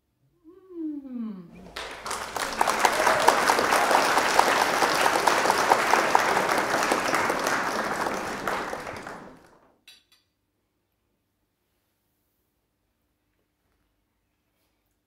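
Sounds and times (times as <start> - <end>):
crowd applause: 1.6 - 9.7.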